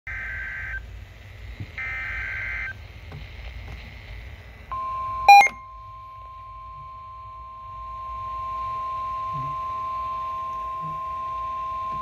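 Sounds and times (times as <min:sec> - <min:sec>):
short loud beep: 0:04.8 - 0:06.1
steady warning alert tone: 0:04.8 - 0:12.0.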